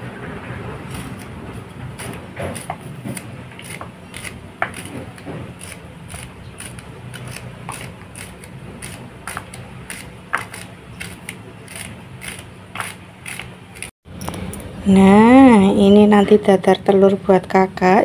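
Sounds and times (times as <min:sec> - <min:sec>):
knife slicing leeks: 0:00.9 - 0:13.9.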